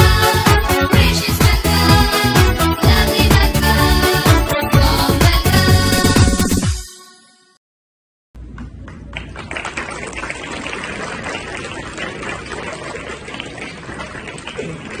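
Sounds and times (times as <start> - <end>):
crowd hubbub: 9.8 - 15.0.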